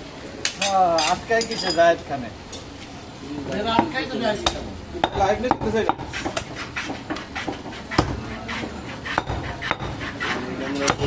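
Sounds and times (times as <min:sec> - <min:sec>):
knife chopping on wooden block: 0:04.5 - 0:10.2, 0:10.8 - 0:11.0.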